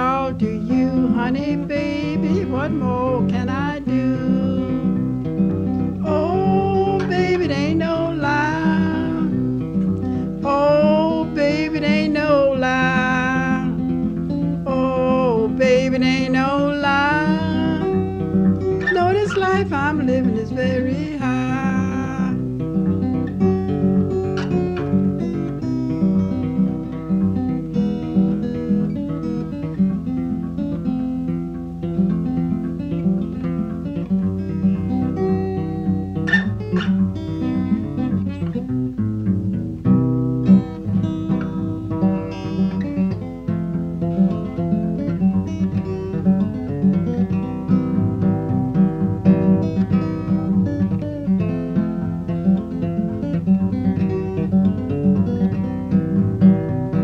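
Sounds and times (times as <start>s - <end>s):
fingerpicked acoustic guitar: 0.0s - 57.0s.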